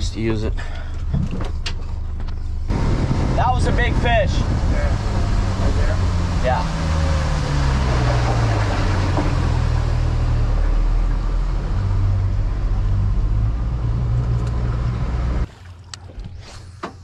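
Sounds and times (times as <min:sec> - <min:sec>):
outboard motor humming: 0:02.1 - 0:13.0
wind noise: 0:02.7 - 0:09.7
rushing water: 0:02.8 - 0:11.8.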